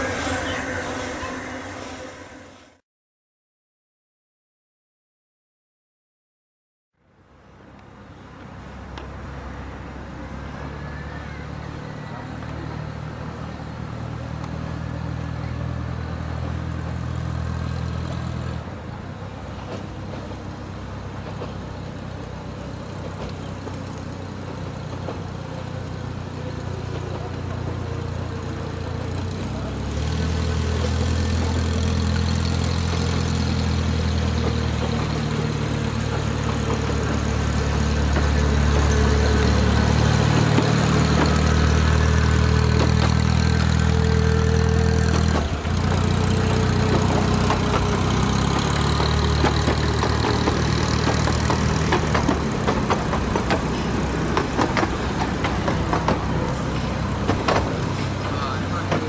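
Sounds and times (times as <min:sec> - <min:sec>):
diesel locomotive engine: 0:00.0 - 0:02.8, 0:07.0 - 0:59.0
steady high whine: 0:00.0 - 0:02.8.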